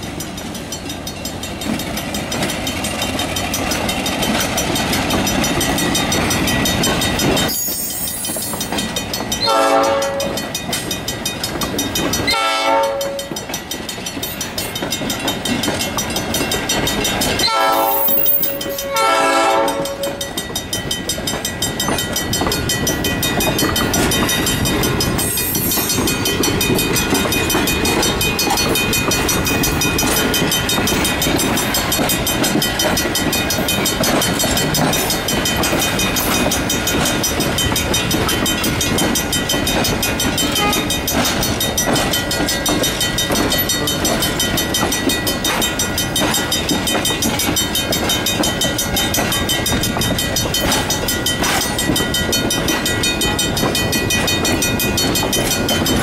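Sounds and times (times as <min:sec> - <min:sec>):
crossing bell ringing: 0:00.0 - 0:56.0
train wheels clattering over rails: 0:00.0 - 0:56.0
train horn blasts: 0:09.4 - 0:10.4, 0:12.3 - 0:13.3, 0:17.4 - 0:20.3, 0:40.5 - 0:40.9.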